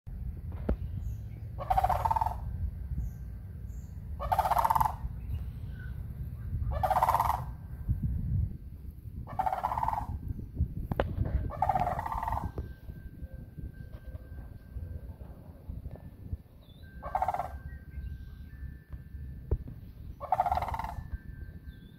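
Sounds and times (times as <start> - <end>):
low rumble: 0.1 - 21.9
cranes rattling calls: 1.5 - 2.6, 4.0 - 7.6, 9.2 - 10.3, 11.2 - 12.8, 17.0 - 17.7, 19.9 - 21.2.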